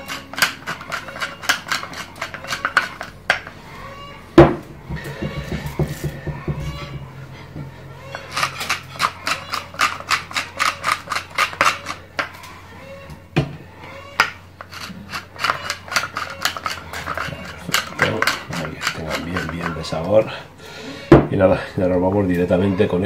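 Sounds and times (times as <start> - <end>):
pepper mill grinding clicks: 0.0 - 3.2, 8.3 - 12.0.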